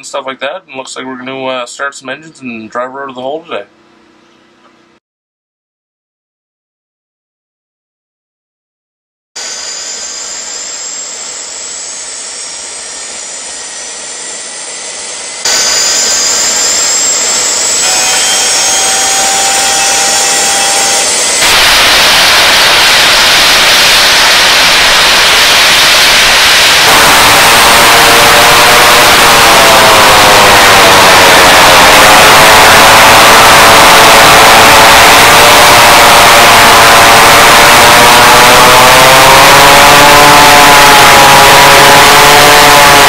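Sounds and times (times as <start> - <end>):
turbine engine whine: 9.4 - 43.0
low wavering drone: 23.6 - 43.0.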